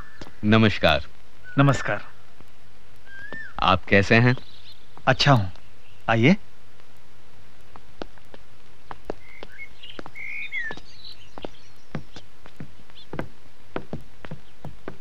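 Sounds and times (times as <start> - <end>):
birds chirping: 0.0 - 15.0
footsteps on hard floor: 8.0 - 15.0.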